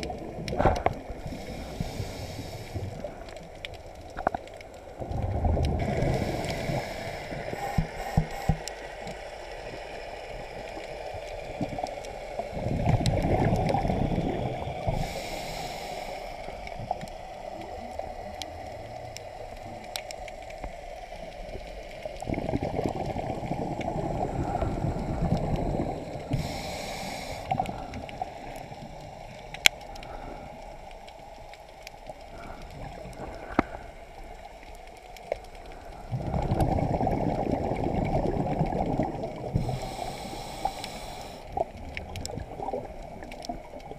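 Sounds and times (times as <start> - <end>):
regulator hiss on inhale: 1.0 - 4.4, 5.8 - 12.9, 13.8 - 22.3, 23.3 - 36.4, 39.4 - 41.8
exhaust bubbles rushing underwater: 2.6 - 8.5, 9.6 - 15.3, 16.5 - 30.3, 35.7 - 40.8, 41.5 - 43.9.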